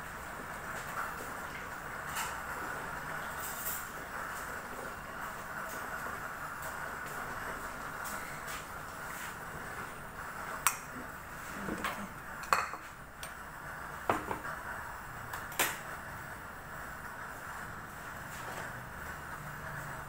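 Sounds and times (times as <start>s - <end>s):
crockery clinking and knocking: 12.4s - 12.9s.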